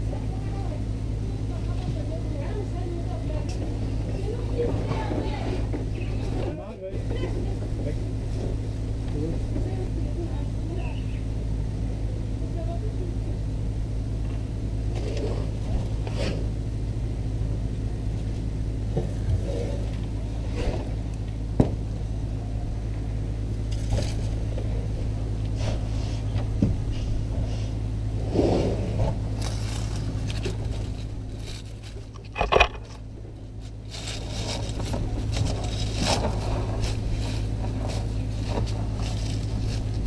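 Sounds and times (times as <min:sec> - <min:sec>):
elephant trunk scraping sand: 0:27.0 - 0:33.0, 0:33.9 - 0:40.0.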